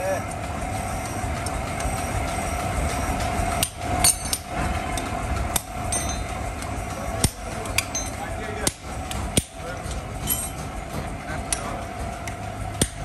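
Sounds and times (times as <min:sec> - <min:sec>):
steady machine hum: 0:00.0 - 0:13.0
hammer striking iron on anvil: 0:03.6 - 0:04.5, 0:05.5 - 0:06.4, 0:07.2 - 0:09.6, 0:10.2 - 0:10.6, 0:12.2 - 0:13.0.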